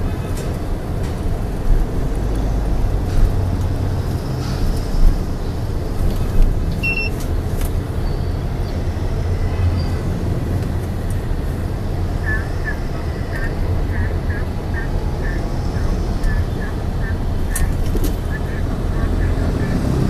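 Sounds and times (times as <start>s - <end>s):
motorbike traffic rumble: 0.0s - 20.0s
road noise: 0.0s - 20.0s
high beep: 6.8s - 7.2s.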